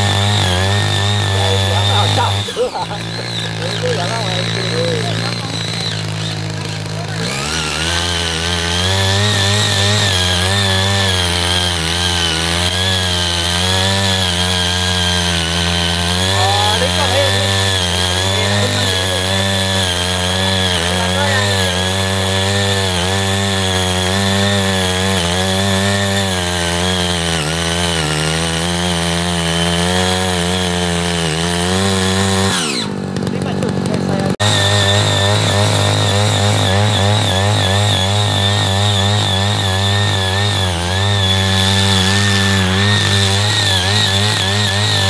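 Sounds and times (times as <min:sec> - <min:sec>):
power tiller engine running: 0:00.0 - 0:45.0.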